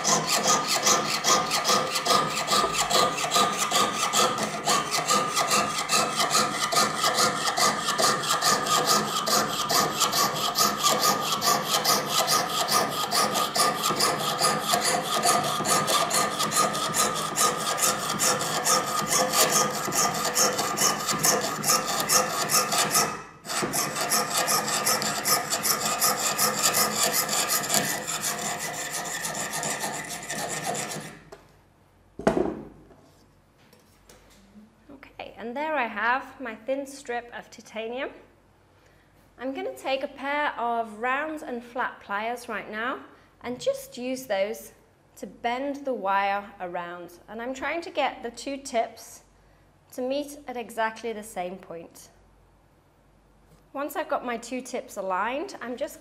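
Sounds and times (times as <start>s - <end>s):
saw cutting metal sheet: 0.0s - 31.2s.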